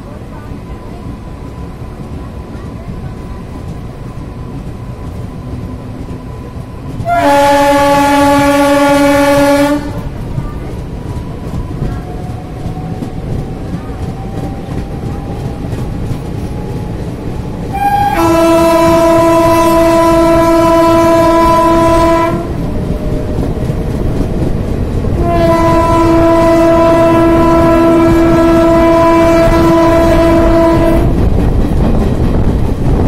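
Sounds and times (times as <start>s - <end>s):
train coaches rumbling on rails: 0.0s - 33.0s
train horn blasts: 7.0s - 10.1s, 17.7s - 22.6s, 25.1s - 31.2s.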